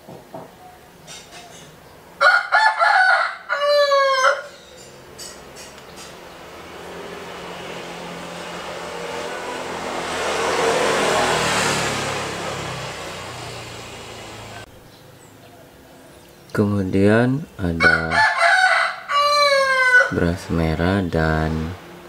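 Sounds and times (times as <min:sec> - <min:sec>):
rooster crowing: 0:02.2 - 0:04.9, 0:17.8 - 0:20.2
vehicle passing: 0:04.4 - 0:14.8, 0:20.0 - 0:22.0.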